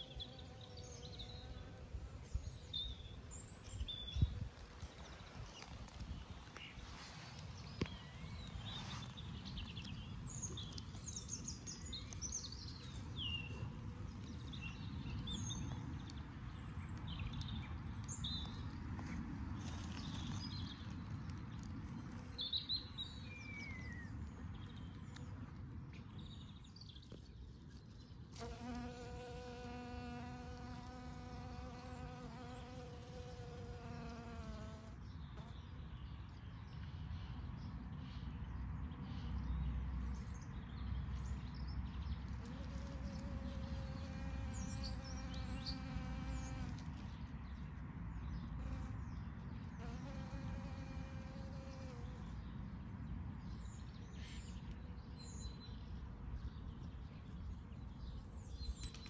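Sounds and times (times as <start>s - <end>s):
small birds chirping: 0.0s - 18.8s, 19.6s - 59.0s
honeybee buzzing: 28.4s - 35.0s, 42.5s - 46.8s, 49.8s - 52.2s.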